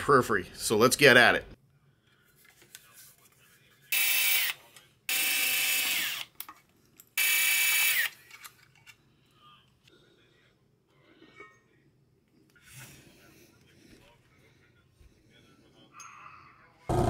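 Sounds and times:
power screwdriver whine: 0:04.0 - 0:06.3, 0:07.2 - 0:08.1.

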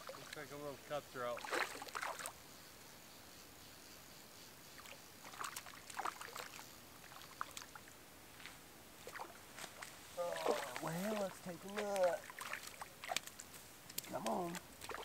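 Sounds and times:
faint hiss: 0:00.0 - 0:15.0
fish splashing at water surface: 0:01.4 - 0:02.3, 0:09.0 - 0:15.0.

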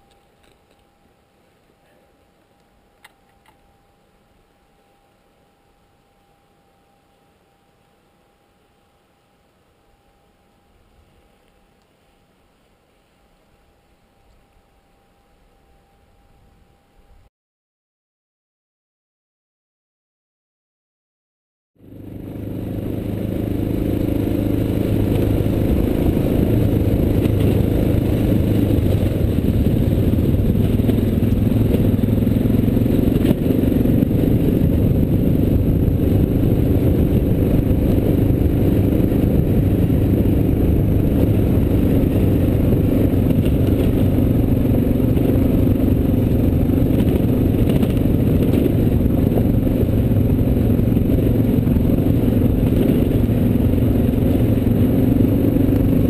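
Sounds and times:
motorcycle engine drone: 0:21.8 - 0:56.0.

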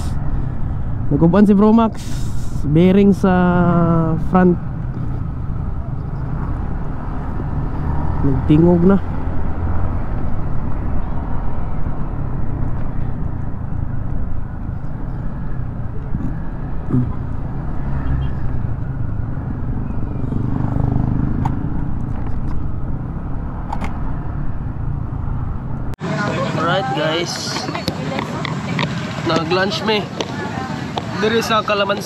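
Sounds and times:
wind rumbling on microphone: 0:09.0 - 0:26.0.

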